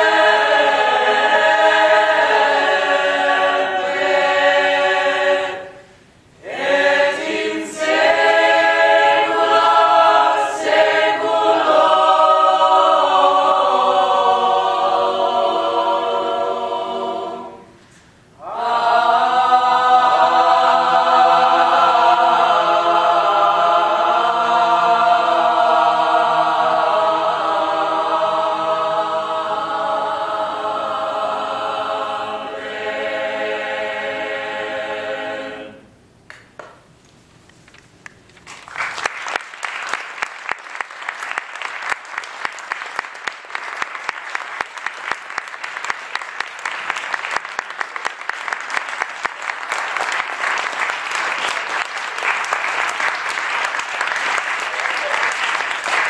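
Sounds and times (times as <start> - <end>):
choir singing a cappella: 0.0 - 36.0
audience applauding: 38.1 - 56.0.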